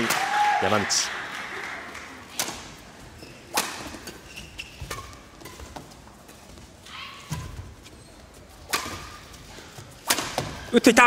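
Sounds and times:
rackets hitting shuttlecock: 0:01.9 - 0:02.8, 0:03.4 - 0:05.8, 0:08.6 - 0:09.2, 0:10.0 - 0:10.6
shoes squeaking on court floor: 0:02.4 - 0:10.6.

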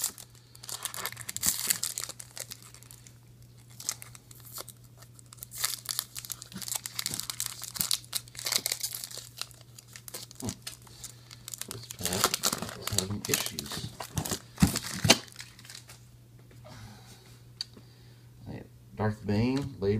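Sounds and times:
foil wrapper crinkling and tearing: 0:00.0 - 0:16.0.

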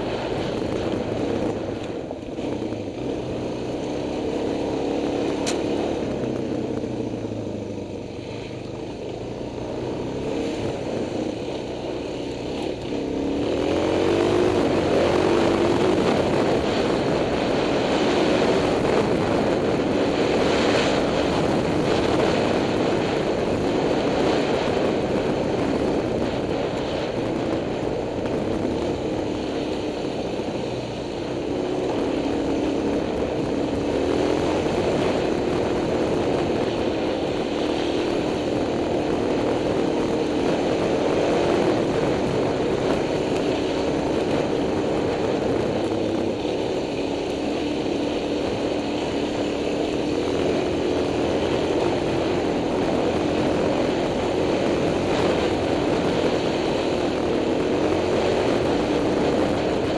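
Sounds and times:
dirt bike engine revving: 0:12.5 - 0:25.4.

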